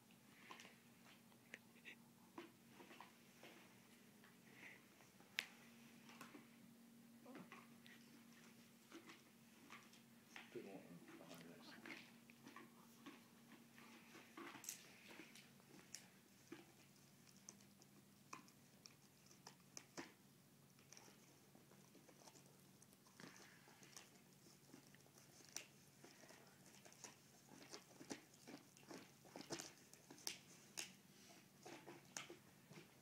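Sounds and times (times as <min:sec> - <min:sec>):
dog teeth crunching on bone: 0:11.3 - 0:20.2, 0:20.8 - 0:31.0.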